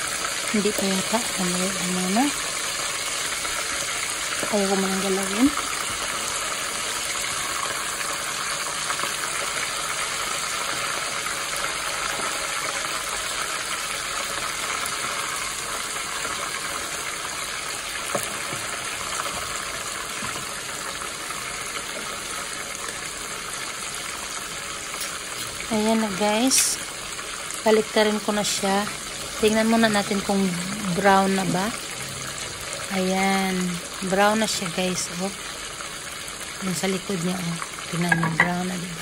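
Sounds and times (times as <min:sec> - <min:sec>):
hot oil sizzling: 0:00.0 - 0:39.0.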